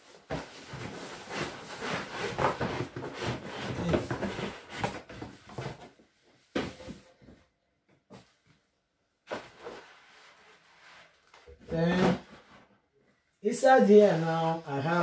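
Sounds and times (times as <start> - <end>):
cardboard scraping and rubbing: 0.2 - 5.9.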